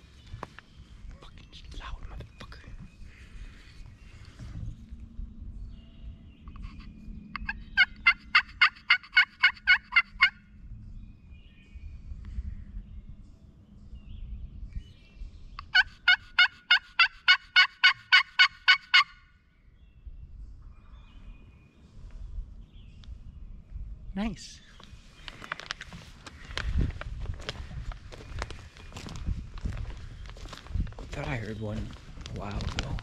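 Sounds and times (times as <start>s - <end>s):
faint songbird chirps: 0.0s - 8.0s, 10.4s - 15.8s, 19.3s - 26.9s
turkey yelps: 6.5s - 10.4s, 15.6s - 19.2s
low outdoor rumble: 22.0s - 33.0s.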